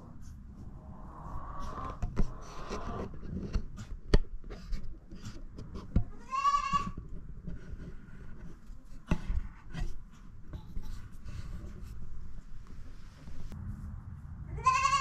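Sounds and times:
goat bleating: 6.2 - 7.0, 14.6 - 15.0.

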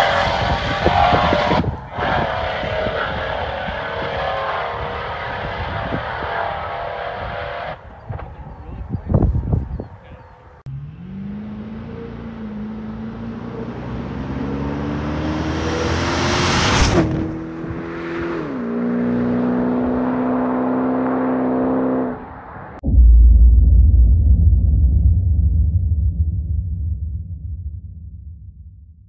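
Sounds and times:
car accelerating past: 10.7 - 22.8
low thumps: 22.8 - 29.0.

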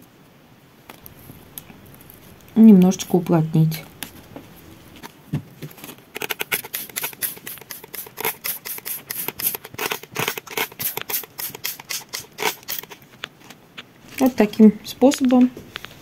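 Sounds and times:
spray bottle squirting: 6.2 - 13.0.

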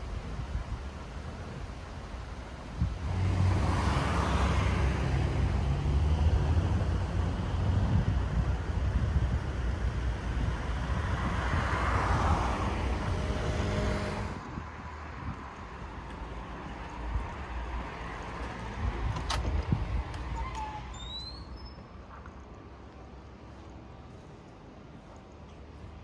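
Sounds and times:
car passing: 2.9 - 19.1.

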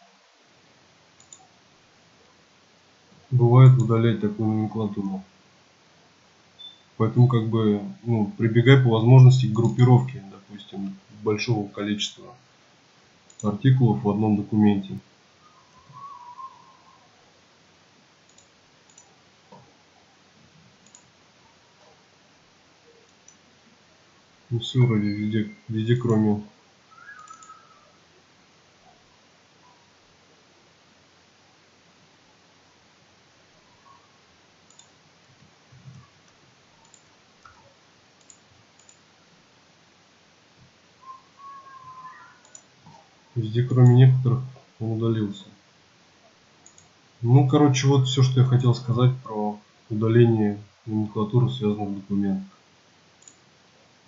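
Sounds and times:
computer mouse clicks: 1.2 - 1.5, 9.6 - 9.8, 13.3 - 13.5, 18.3 - 19.7, 20.8 - 21.1, 23.0 - 23.4, 27.0 - 27.8, 34.6 - 35.0, 35.7 - 39.0, 42.1 - 43.0, 46.6 - 47.0, 53.2 - 53.4
keyboard clicks: 1.2 - 1.5, 9.5 - 9.9, 13.3 - 13.6, 18.3 - 19.6, 20.8 - 21.1, 27.1 - 27.6, 34.7 - 35.0, 35.8 - 39.0, 42.4 - 43.0, 46.6 - 46.9, 53.2 - 53.4
mouse and keyboard clicks: 9.6 - 9.8, 27.1 - 27.6, 34.7 - 34.9.

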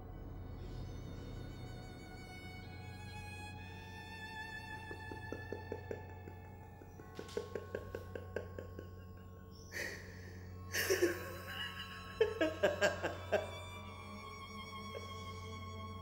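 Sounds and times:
quiet violin music: 0.0 - 16.0
man laughing breathily: 5.0 - 13.8.

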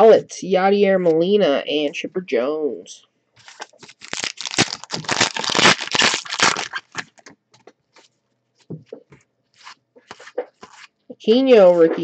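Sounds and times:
wrapper crinkling and tearing: 3.4 - 7.3.

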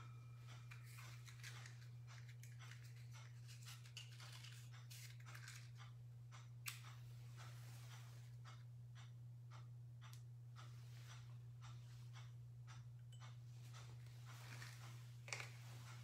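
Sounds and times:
steady low hum: 0.0 - 16.0
scratchy crinkling handling noises: 0.6 - 5.8, 13.8 - 16.0.

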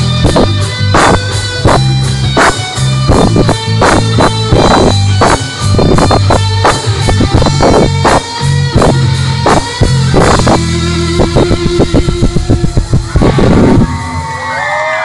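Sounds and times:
drum beat: 0.0 - 14.0
live rock band playing: 0.0 - 15.0.

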